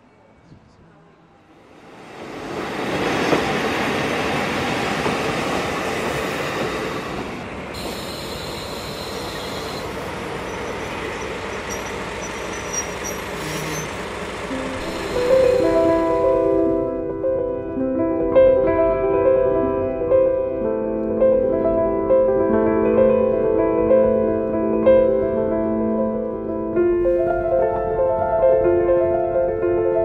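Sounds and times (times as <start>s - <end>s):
train rumbling and rattling: 0.1s - 30.0s
high wheel squeals: 7.8s - 16.3s
gentle music: 14.5s - 30.0s.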